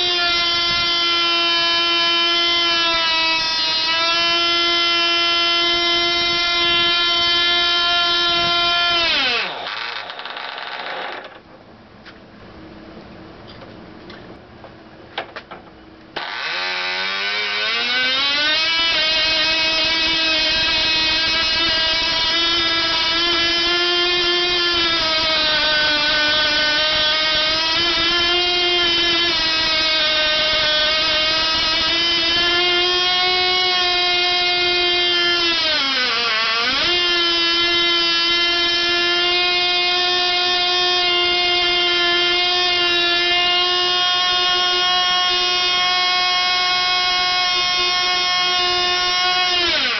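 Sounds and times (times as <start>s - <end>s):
model glow engine whining: 16.2s - 49.9s.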